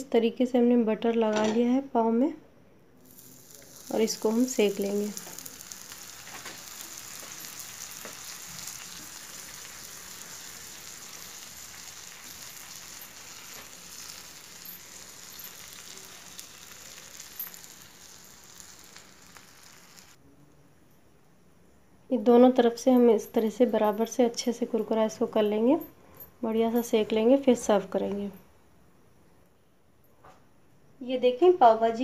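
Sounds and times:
butter sizzling on a griddle: 3.0s - 20.2s.

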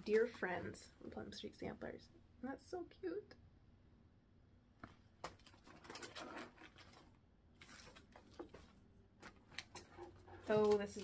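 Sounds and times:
paper and plastic rustling: 4.8s - 11.0s.

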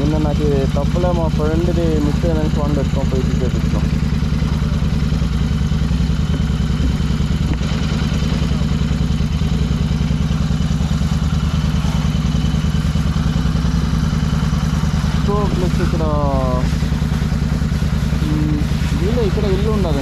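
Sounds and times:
engine running steadily: 0.0s - 20.0s.

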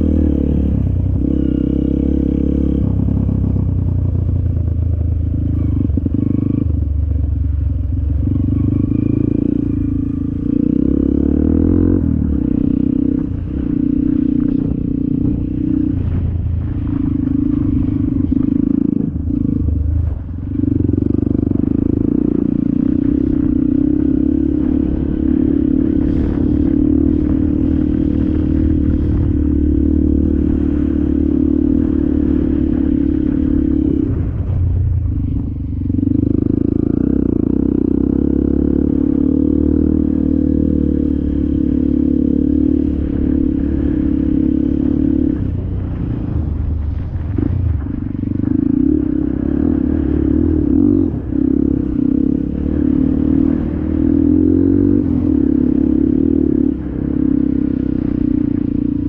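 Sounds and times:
dirt bike engine running: 0.0s - 59.0s.

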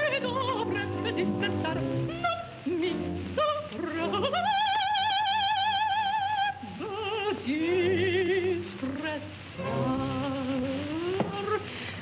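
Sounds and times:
operatic soprano singing: 0.0s - 12.0s.

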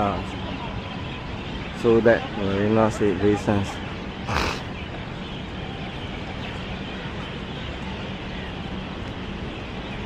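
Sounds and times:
city background rumble: 0.0s - 10.0s.

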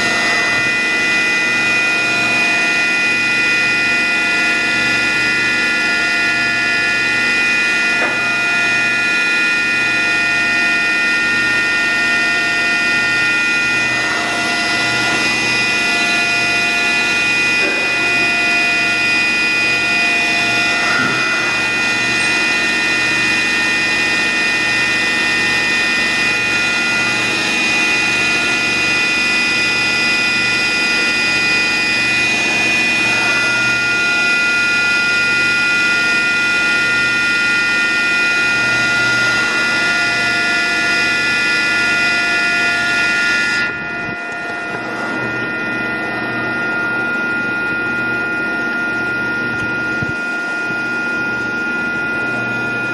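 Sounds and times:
pulsing low hum: 0.0s - 35.2s, 41.0s - 52.8s
milling machine whine: 0.0s - 52.9s
brief sliding tones: 20.8s - 22.7s.

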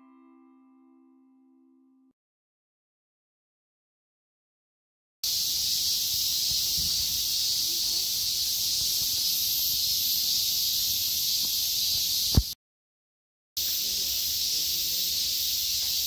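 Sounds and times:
cicadas buzzing: 5.2s - 12.6s, 13.6s - 16.0s.

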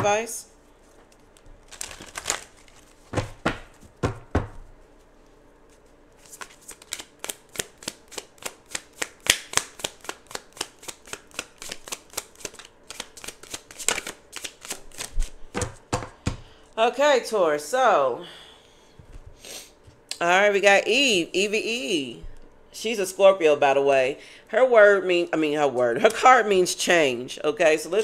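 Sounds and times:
cards being shuffled: 1.0s - 3.9s, 5.7s - 15.8s.

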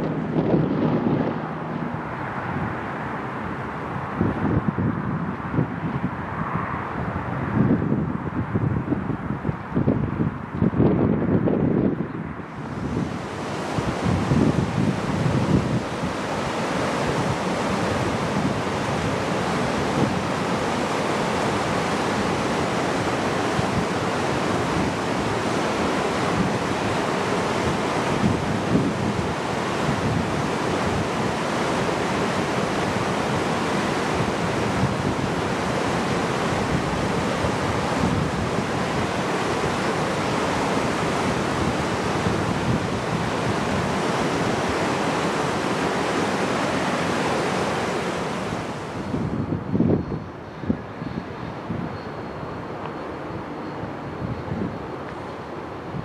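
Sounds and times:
creek rushing over rocks: 12.5s - 49.1s.

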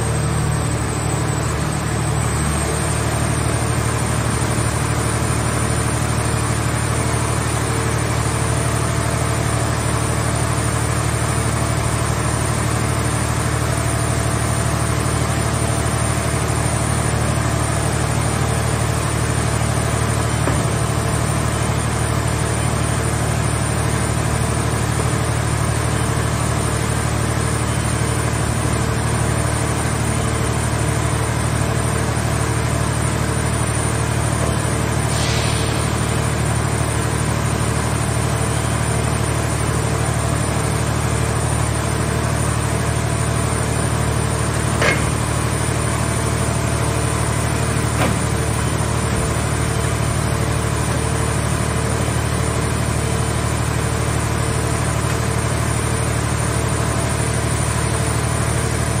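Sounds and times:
hydraulic power unit droning: 0.0s - 59.0s
brief hiss: 35.1s - 36.0s
sharp metallic clank: 44.8s - 45.3s.

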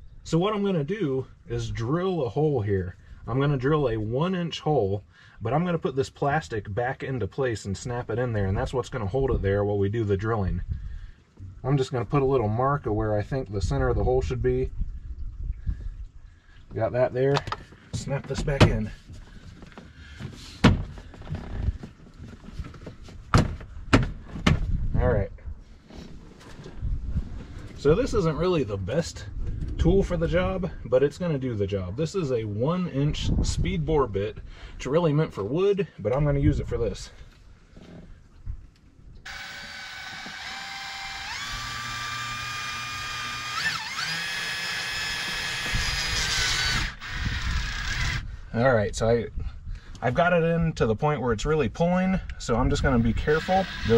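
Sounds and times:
cordless drill motor whine: 39.3s - 48.3s, 52.9s - 53.9s.

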